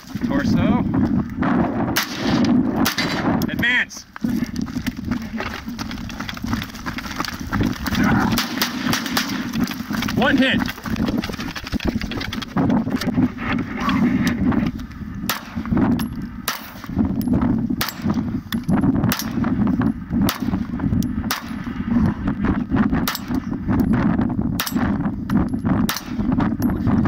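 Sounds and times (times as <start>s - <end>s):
pistol shots: 1.4s - 3.4s, 8.4s - 9.6s, 17.8s - 18.2s, 19.1s - 19.5s, 25.9s - 26.3s.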